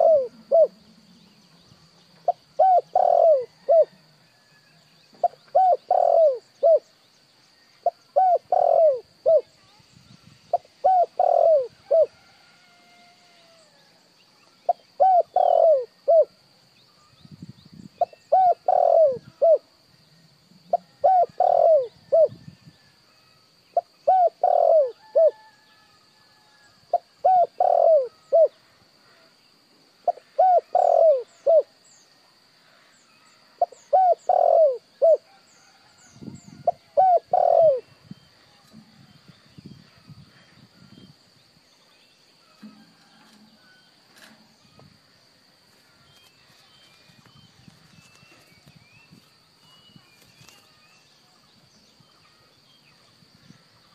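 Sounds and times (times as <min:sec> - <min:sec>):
dove cooing: 0:00.0 - 0:00.8, 0:02.2 - 0:04.0, 0:05.2 - 0:06.9, 0:07.8 - 0:09.5, 0:10.5 - 0:12.2, 0:14.7 - 0:16.3, 0:18.0 - 0:19.7, 0:20.7 - 0:22.4, 0:23.8 - 0:25.5, 0:26.9 - 0:28.6, 0:30.0 - 0:31.8, 0:33.6 - 0:38.0
small birds chirping: 0:05.1 - 0:11.7, 0:44.2 - 0:53.9.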